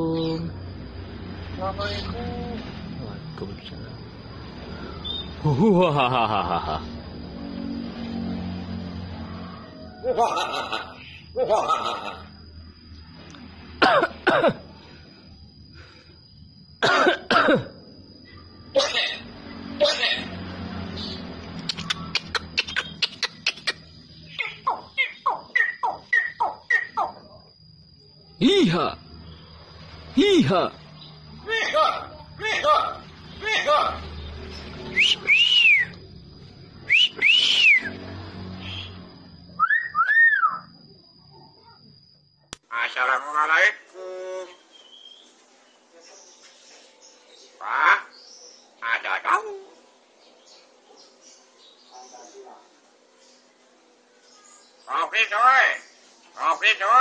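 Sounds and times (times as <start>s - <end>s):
myna whistling: 34.9s - 36.0s, 36.8s - 38.0s, 39.6s - 40.7s.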